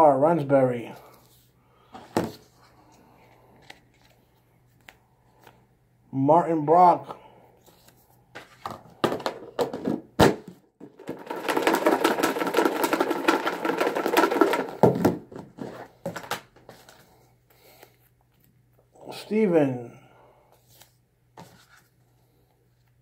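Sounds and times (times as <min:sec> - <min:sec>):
paper slips rattling in plastic tub: 0:10.8 - 0:16.4.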